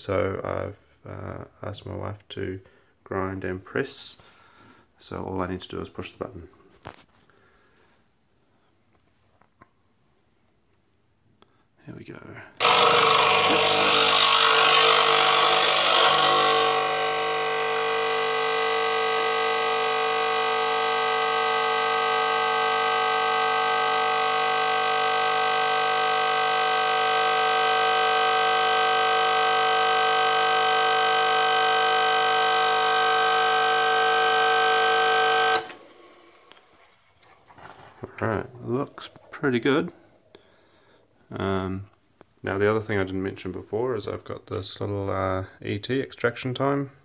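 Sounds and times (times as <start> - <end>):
espresso machine pump buzzing: 12.6 - 38.0.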